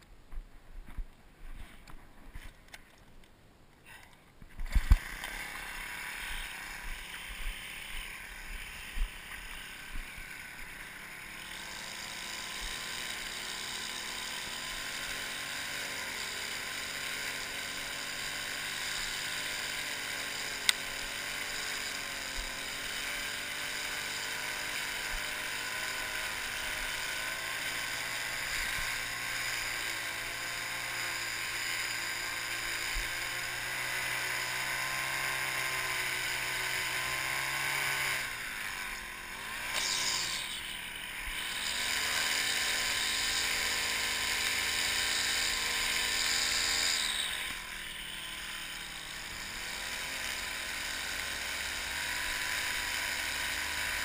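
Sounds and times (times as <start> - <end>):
string trimmer engine running: 3.9 - 54.0
trimmer line cutting grass: 3.9 - 54.0.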